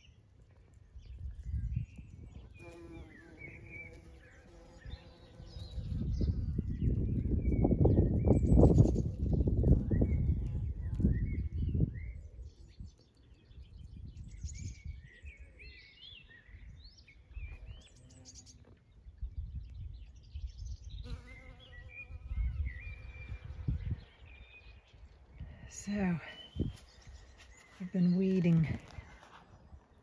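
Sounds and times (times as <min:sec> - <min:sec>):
birds chirping and singing: 0:01.0 - 0:30.0
bumblebee buzzing: 0:02.6 - 0:06.1, 0:21.0 - 0:23.9.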